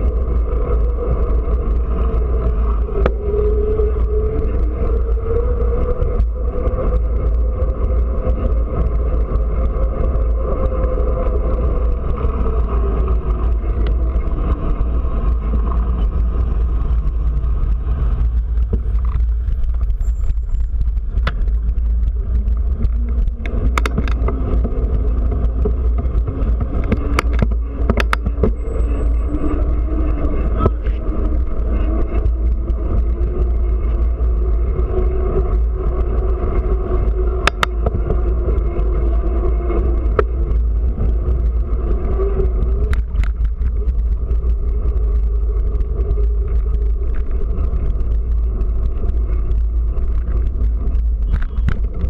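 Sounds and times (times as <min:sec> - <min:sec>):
car engines in traffic: 0:00.0 - 0:52.0
wind buffeting microphone: 0:00.0 - 0:52.0
sharp clicks: 0:37.4 - 0:38.0.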